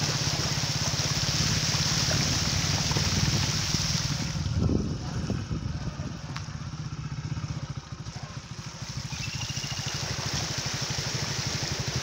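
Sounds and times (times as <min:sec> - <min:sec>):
rushing hiss: 0:00.0 - 0:04.6, 0:08.6 - 0:12.0
motorcycle engine running: 0:00.0 - 0:12.0.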